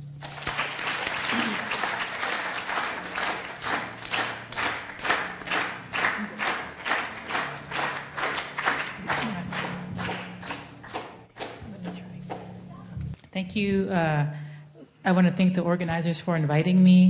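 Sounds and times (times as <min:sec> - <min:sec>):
audience clapping in time: 0:00.0 - 0:12.6
low steady hum: 0:00.0 - 0:17.0.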